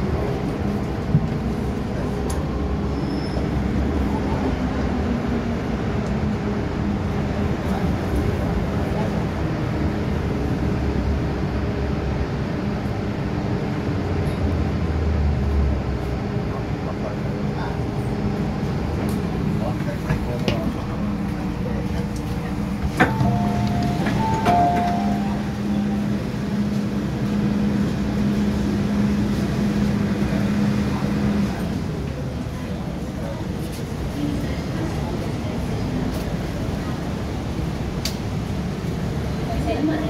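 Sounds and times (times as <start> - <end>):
train wheels rumbling: 15.9 - 40.0.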